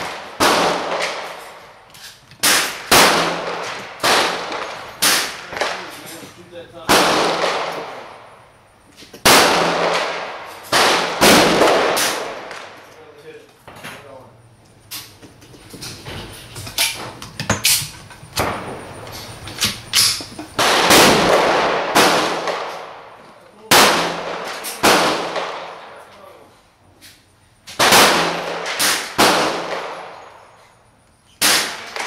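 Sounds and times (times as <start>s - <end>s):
faint gunshots: 0.0s - 1.4s, 2.4s - 6.2s, 6.8s - 8.2s, 9.2s - 12.8s, 20.6s - 26.0s, 27.8s - 30.3s, 31.4s - 32.0s
echoing gunshots: 0.0s - 1.8s, 2.4s - 6.2s, 6.8s - 8.5s, 9.2s - 12.8s, 20.6s - 26.0s, 27.8s - 30.5s, 31.4s - 32.0s.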